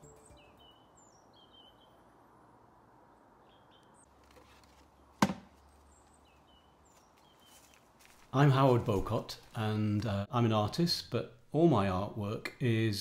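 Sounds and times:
small birds chirping: 0.0s - 2.2s, 3.1s - 4.2s, 4.9s - 8.0s
faint outdoor background: 0.0s - 13.0s.

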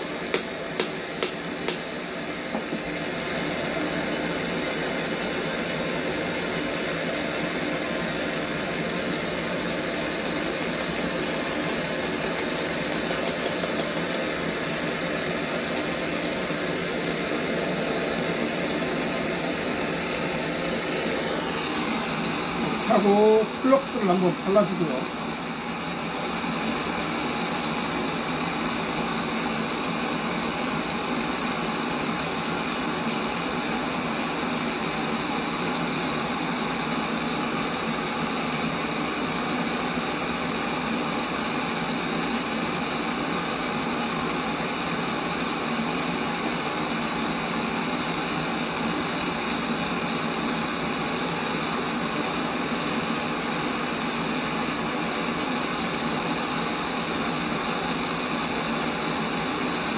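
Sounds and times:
gas torch flame hissing: 7.4s - 59.9s.

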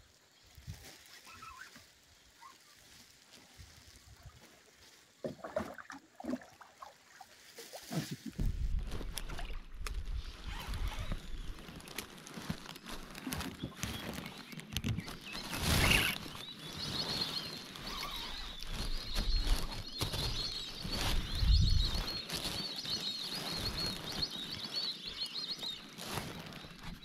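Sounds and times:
birds chirping: 1.2s - 2.8s, 8.4s - 27.0s.

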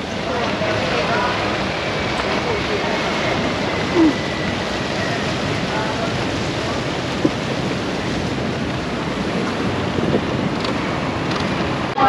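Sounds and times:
wind and sea water rushing: 0.0s - 12.0s.

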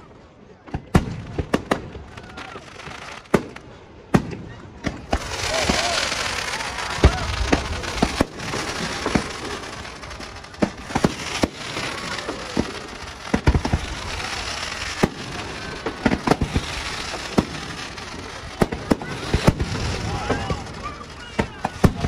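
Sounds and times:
fireworks bangs: 0.6s - 22.0s
fireworks hiss: 4.9s - 22.0s.

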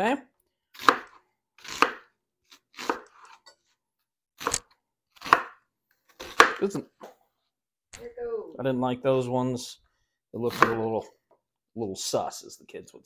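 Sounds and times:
knife chopping onion on board: 0.8s - 3.3s, 5.2s - 5.6s, 6.2s - 6.7s, 10.5s - 10.9s.

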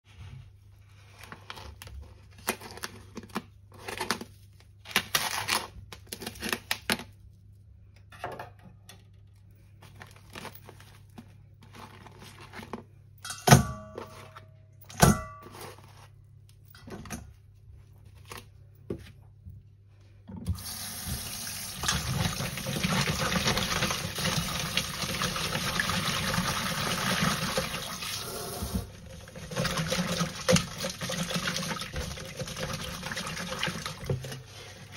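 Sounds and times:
tap water running into sink: 20.4s - 34.4s.

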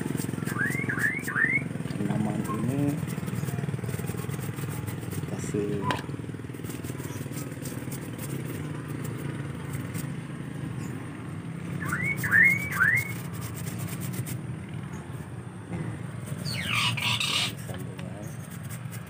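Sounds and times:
small engine humming: 0.0s - 19.0s
quick rising chirps: 0.3s - 1.7s, 10.7s - 14.3s, 16.2s - 17.6s
falling whistle-like sweep: 11.8s - 13.2s.

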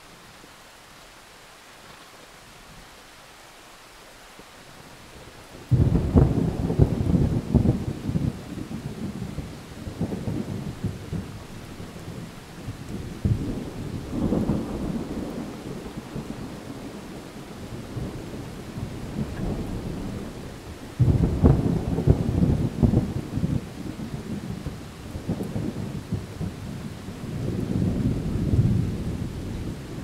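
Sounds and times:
rain hiss: 0.0s - 30.0s
distant thunder rolling: 5.7s - 30.0s.

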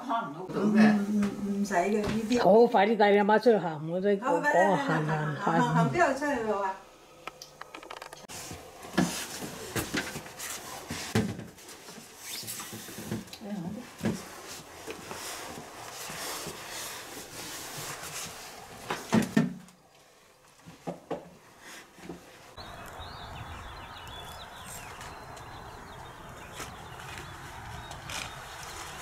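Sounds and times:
outdoor background hiss: 0.0s - 29.0s
shuffling footsteps: 23.9s - 29.0s.

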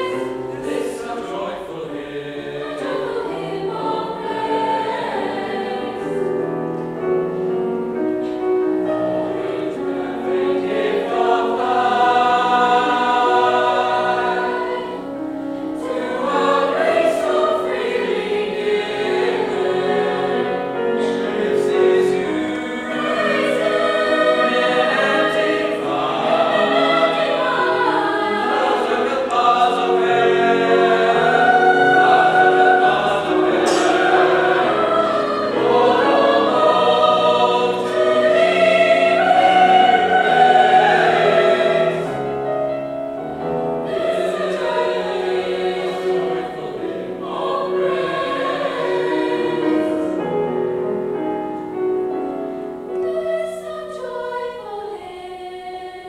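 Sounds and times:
choir singing an anthem: 0.0s - 7.1s, 8.2s - 51.2s, 52.8s - 56.0s.

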